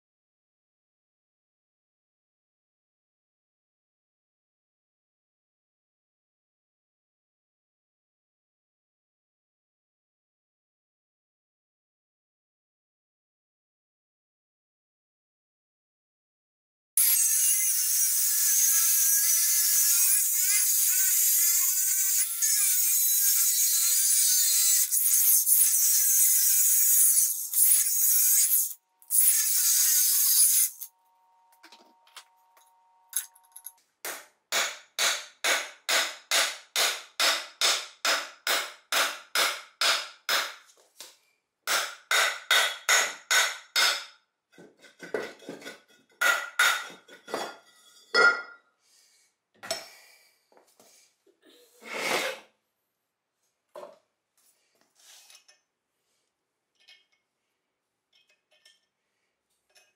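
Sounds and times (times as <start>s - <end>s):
angle grinder cutting metal: 17.0s - 30.9s
sawing strokes on metal: 17.0s - 30.9s.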